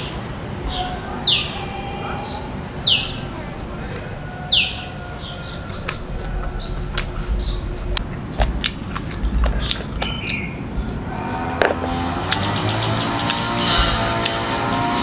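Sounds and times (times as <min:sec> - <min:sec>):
birds chirping: 0:00.0 - 0:15.0
low rumble: 0:02.4 - 0:13.0.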